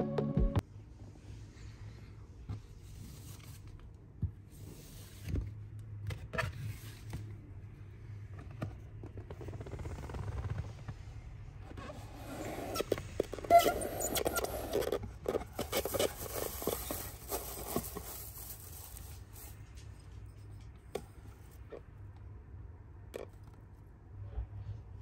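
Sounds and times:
paper filler rustling: 0:12.6 - 0:20.4.

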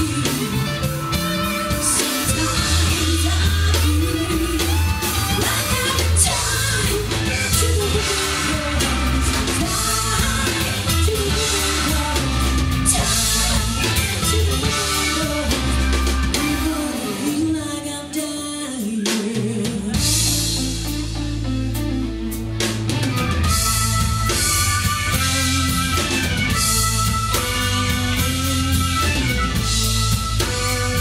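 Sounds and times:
woman singing: 0:00.0 - 0:20.8, 0:27.6 - 0:31.0
live rock band playing: 0:00.0 - 0:31.0.

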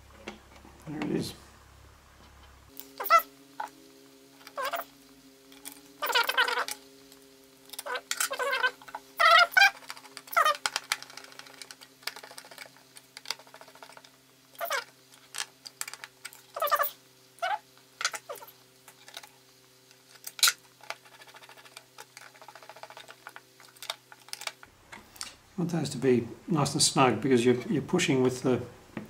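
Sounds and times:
steady low hum: 0:00.0 - 0:29.0
high pitched squeaks: 0:03.0 - 0:03.7, 0:04.4 - 0:05.0, 0:06.0 - 0:06.8, 0:07.8 - 0:10.7, 0:14.6 - 0:14.9, 0:16.5 - 0:18.5.

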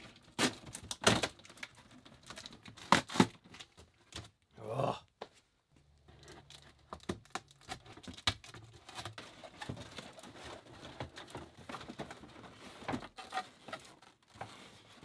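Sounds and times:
cardboard rustling and scraping: 0:07.7 - 0:15.0.

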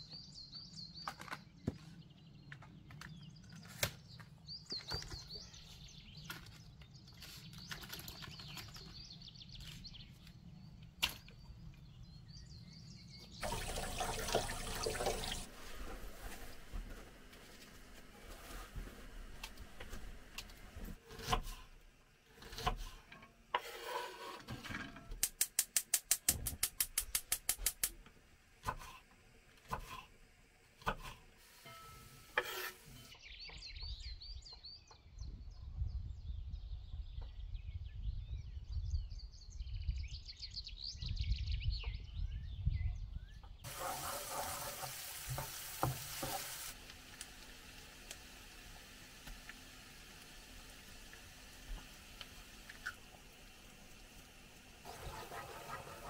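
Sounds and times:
food frying in a pan: 0:13.4 - 0:15.5, 0:43.7 - 0:56.0.

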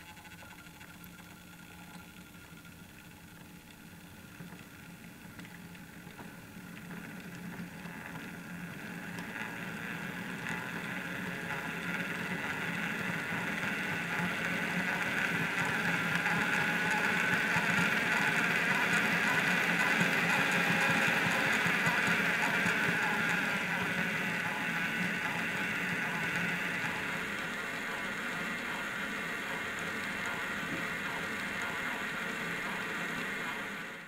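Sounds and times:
model locomotive motor whirring: 0:09.2 - 0:34.0.

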